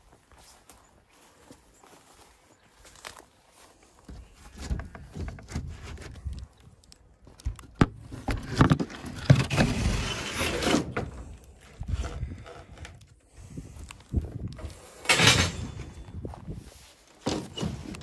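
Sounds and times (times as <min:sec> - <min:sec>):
footsteps through long grass: 0:00.0 - 0:07.4, 0:15.9 - 0:17.9
rustling and scraping: 0:02.9 - 0:18.0.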